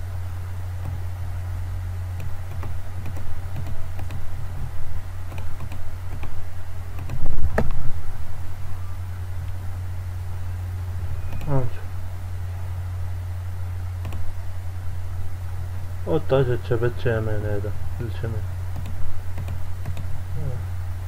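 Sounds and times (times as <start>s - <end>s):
low hum: 0.0s - 21.0s
keyboard and mouse clicks: 2.2s - 4.2s, 5.3s - 6.4s, 7.0s - 7.8s, 14.0s - 14.3s, 18.8s - 20.1s.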